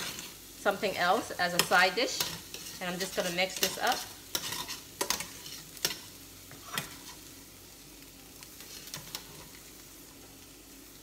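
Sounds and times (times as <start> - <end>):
tongs stirring in skillet: 0.0 - 11.0
tongs clicking on pan: 1.4 - 7.3.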